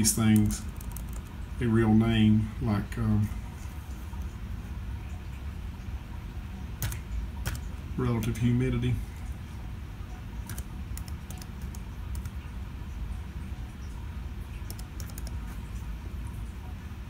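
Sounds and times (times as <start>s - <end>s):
laptop keyboard typing: 0.0s - 1.4s, 6.8s - 8.4s, 10.4s - 12.5s, 14.5s - 15.8s
steady low hum: 0.0s - 17.0s.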